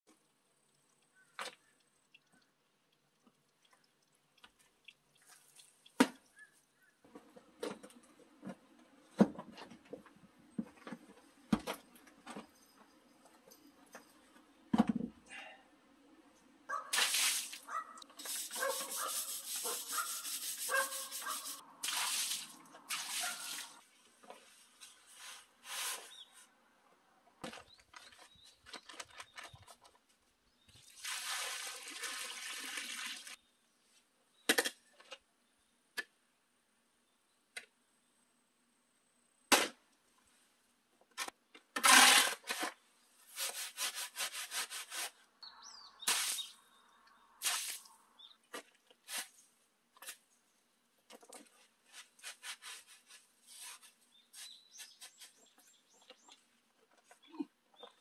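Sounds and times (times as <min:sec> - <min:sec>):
shovel scraping dry mix: 0:18.2 - 0:23.8, 0:24.8 - 0:26.4, 0:41.8 - 0:45.2, 0:46.0 - 0:46.6, 0:47.4 - 0:47.9, 0:49.0 - 0:49.4, 0:51.6 - 0:55.6
shovel striking concrete: 0:41.8 - 0:42.6.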